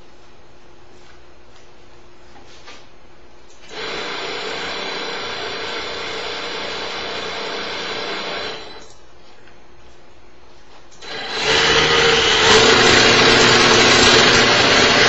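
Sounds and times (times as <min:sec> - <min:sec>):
portable disc sander running: 0:03.7 - 0:08.8, 0:11.0 - 0:15.0.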